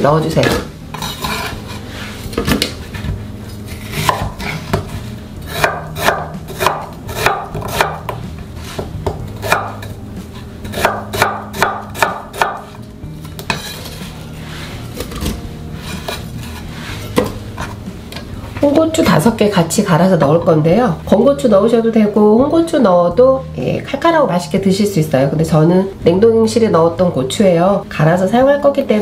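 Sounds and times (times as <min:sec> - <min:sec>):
knife chopping on cutting board: 0:03.7 - 0:09.9, 0:10.6 - 0:14.0, 0:15.0 - 0:17.8.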